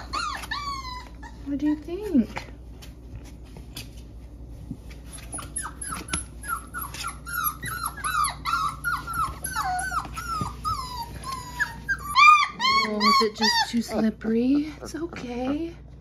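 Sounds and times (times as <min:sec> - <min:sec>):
puppies whimpering: 0:00.0 - 0:01.8, 0:04.9 - 0:15.6.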